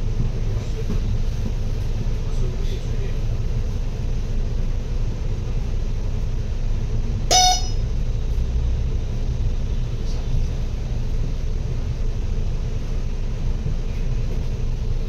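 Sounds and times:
vehicle rumble: 0.0s - 15.0s
car horn toot: 7.3s - 7.9s.

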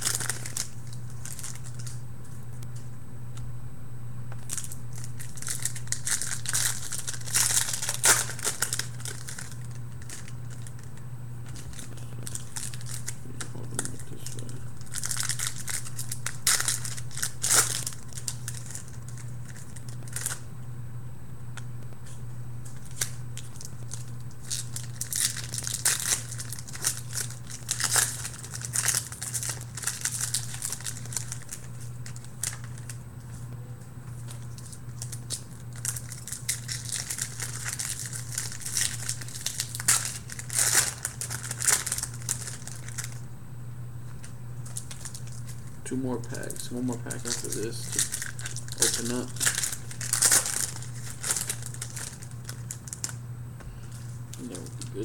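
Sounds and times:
card pack wrappers crinkling and tearing: 0.0s - 2.4s, 4.4s - 20.5s, 22.6s - 33.4s, 34.0s - 43.2s, 44.1s - 53.2s, 53.9s - 55.0s
steady low hum: 0.0s - 55.0s
cards being handled: 46.3s - 52.6s.

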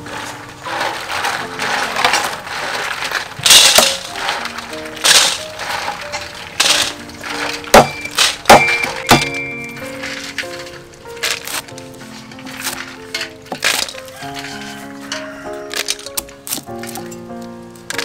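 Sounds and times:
shells scraping in steel bowl: 0.0s - 17.2s
background music with held notes: 0.0s - 18.0s
sharp knocks: 6.6s - 9.8s.

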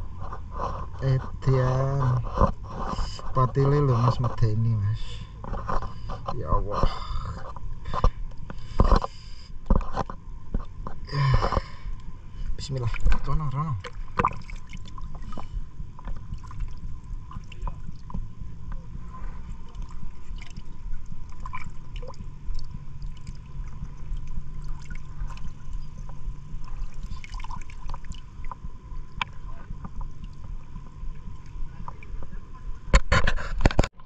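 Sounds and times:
low rumble: 0.0s - 33.1s
water sloshing and lapping: 0.0s - 34.0s
small splashes and drips: 12.8s - 18.2s, 19.6s - 25.8s, 26.6s - 28.6s.

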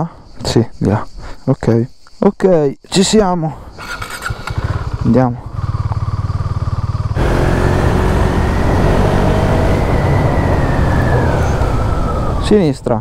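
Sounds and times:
motorcycle engine running: 3.8s - 12.4s
wind rushing over microphone: 7.2s - 12.6s.

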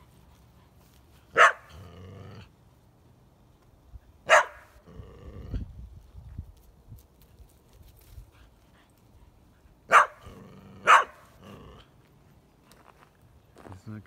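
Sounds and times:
dog barking: 1.3s - 1.8s, 4.2s - 4.8s, 9.9s - 11.3s
dog growling: 1.7s - 2.5s, 4.8s - 5.7s, 10.2s - 11.9s.

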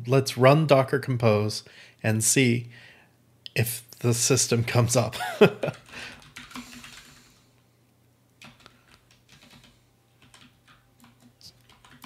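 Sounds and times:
computer keyboard keystrokes: 5.6s - 7.2s, 8.4s - 12.0s.

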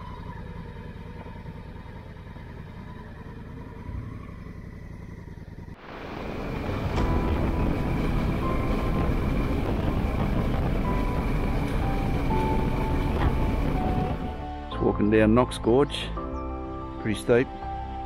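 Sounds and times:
motorcycle engine rumble: 0.0s - 15.5s
wind noise: 5.9s - 14.5s.

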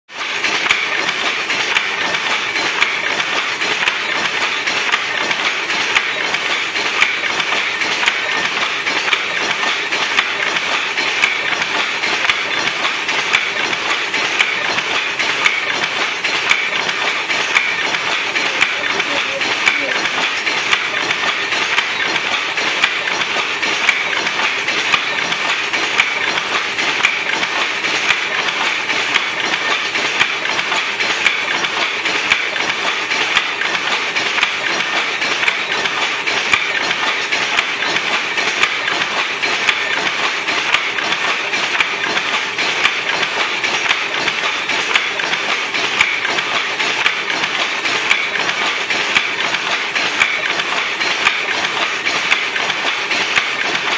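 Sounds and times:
power loom clattering: 0.1s - 53.9s.

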